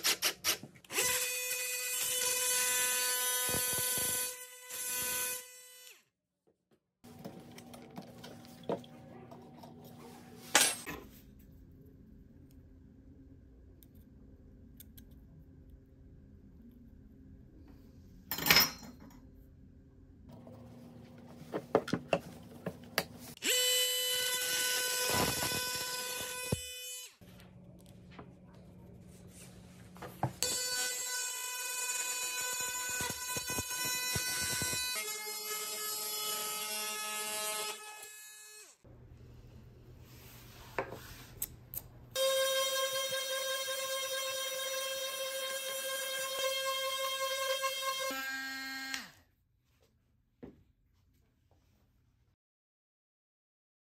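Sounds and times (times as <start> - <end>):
multi-tool high-pitched whine: 0.9 - 6.0, 23.4 - 27.2, 30.4 - 38.8, 42.2 - 49.2.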